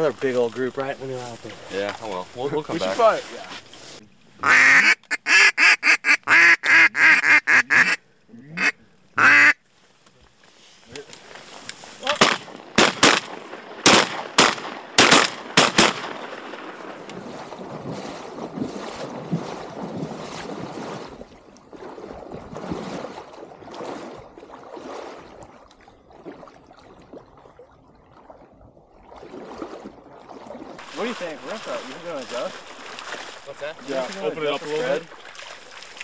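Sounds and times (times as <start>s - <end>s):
water sloshing around wading legs: 0.0s - 4.4s, 9.0s - 36.0s
loud sharp bangs: 12.2s - 16.6s.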